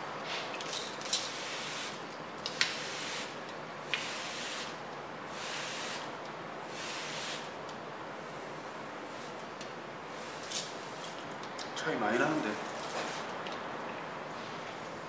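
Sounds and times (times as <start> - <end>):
water sprayer hissing: 3.9 - 4.7, 5.3 - 6.0, 6.7 - 7.5.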